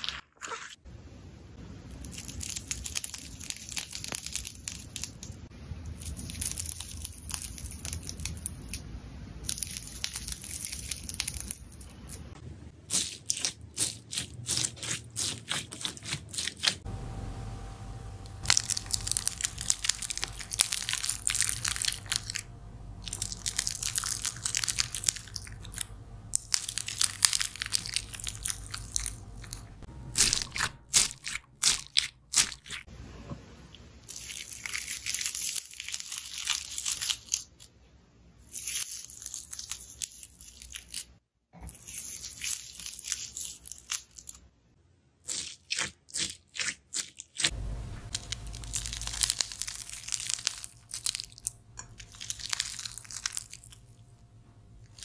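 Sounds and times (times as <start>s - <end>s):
slime crackling and popping: 2.0s - 5.4s, 6.0s - 8.8s, 9.4s - 12.3s, 18.4s - 32.8s, 34.0s - 37.7s, 45.3s - 54.0s.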